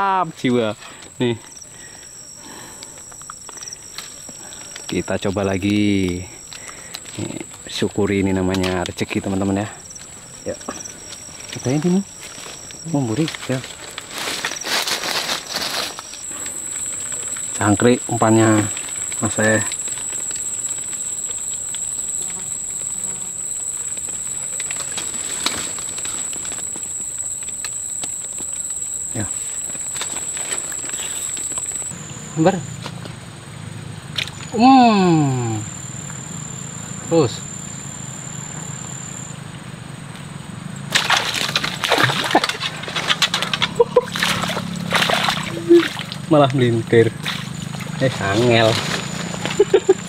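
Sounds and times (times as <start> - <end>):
high-pitched insect drone: 0.0 - 50.0
fish splashing in water: 40.9 - 46.4, 47.1 - 49.7.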